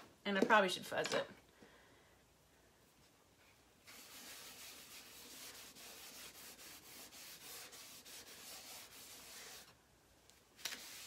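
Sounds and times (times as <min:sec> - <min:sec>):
cloth rubbing on wooden board: 0:03.8 - 0:09.7.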